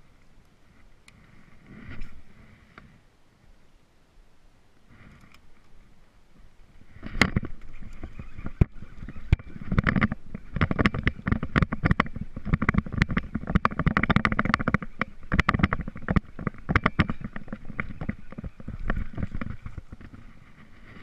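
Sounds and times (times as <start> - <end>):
sleeve rubbing against camera: 0.7 - 2.7.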